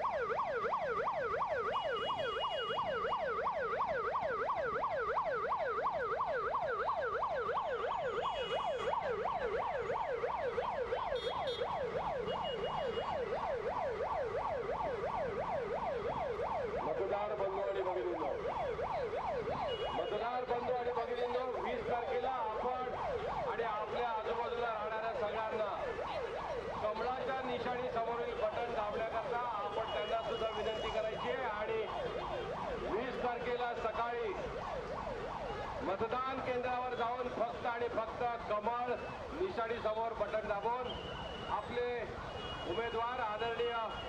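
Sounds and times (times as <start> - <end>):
electronic siren yelping: 0.0 - 35.9.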